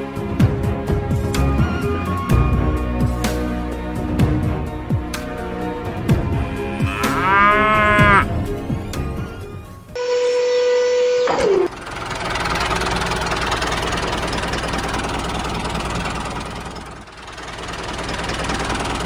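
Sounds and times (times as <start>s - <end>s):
high tone sliding down: 10.0s - 11.8s
tractor engine running: 11.0s - 19.0s.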